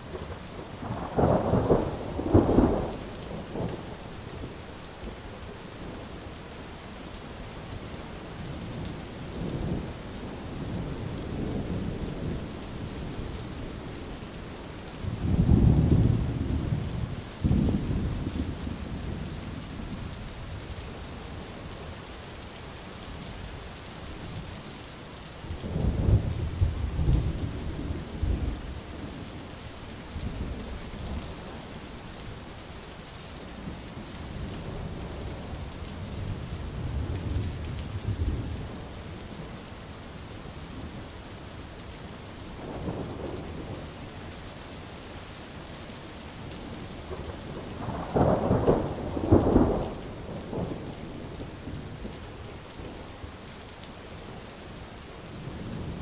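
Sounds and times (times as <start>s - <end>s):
steady rain hissing: 0.0s - 56.0s
rolling thunder: 47.2s - 52.1s.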